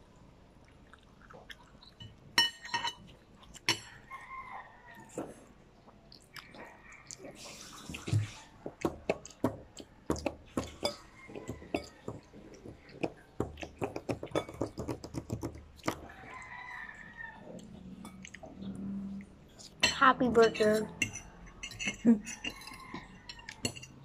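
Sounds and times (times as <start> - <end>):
child chewing with mouth clicks: 0.5 - 19.9, 20.6 - 24.0
rooster crowing: 3.9 - 5.2, 16.0 - 17.6, 22.4 - 23.6.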